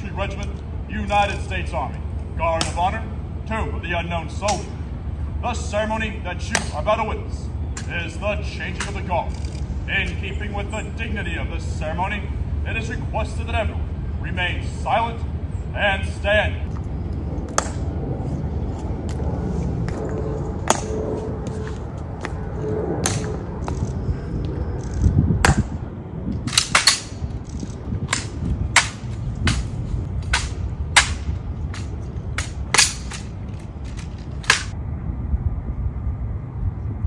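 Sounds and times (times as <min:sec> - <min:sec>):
rifle clicks and slaps: 0:31.8 - 0:34.8.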